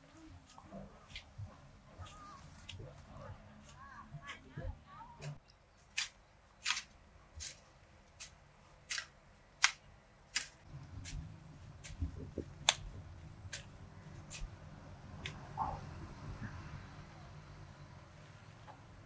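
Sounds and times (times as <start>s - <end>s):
low rumble: 10.6s - 18.2s.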